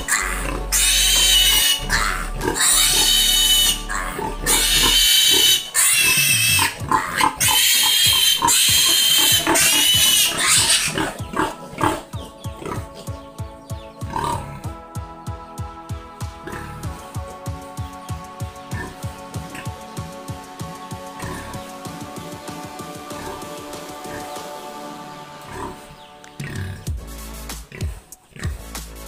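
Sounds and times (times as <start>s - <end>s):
piglet squealing: 0.0s - 12.9s.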